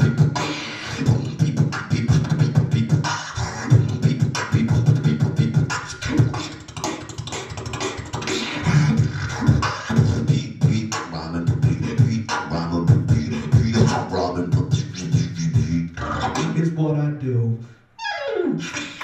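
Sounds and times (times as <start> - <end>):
beatboxing into microphone: 0.0 - 19.0.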